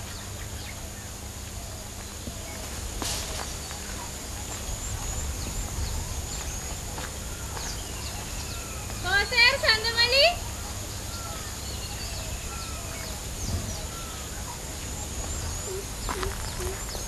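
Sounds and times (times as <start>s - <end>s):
high-pitched whine: 10.4s - 17.0s
low rumble: 12.0s - 17.0s.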